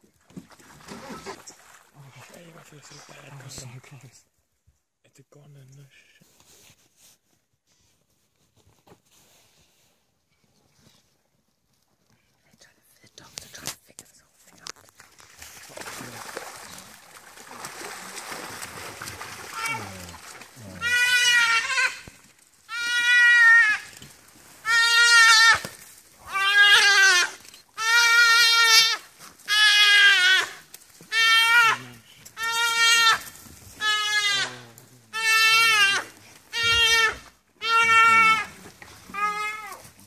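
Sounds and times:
antelope bleating in distress: 0:19.5 - 0:24.0, 0:24.6 - 0:25.7, 0:26.3 - 0:39.9.

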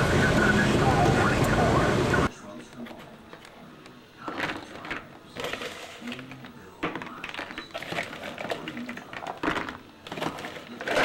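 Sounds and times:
hailstones clattering in a container: 0:04.3 - 0:11.0.

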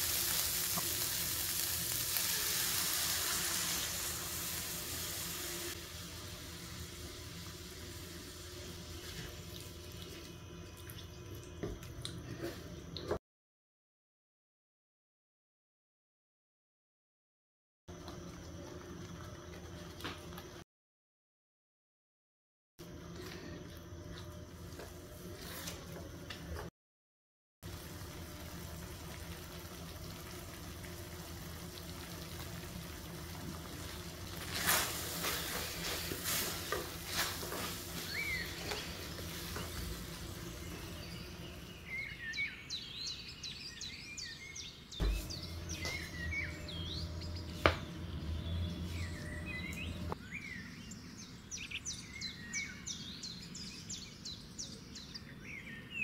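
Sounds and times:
small birds chirping: 0:37.8 - 0:56.0.

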